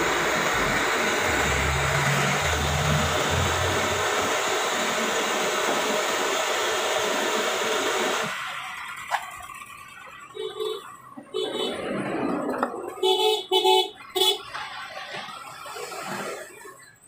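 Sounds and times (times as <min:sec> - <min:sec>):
blowtorch flame hissing: 0:00.0 - 0:08.6.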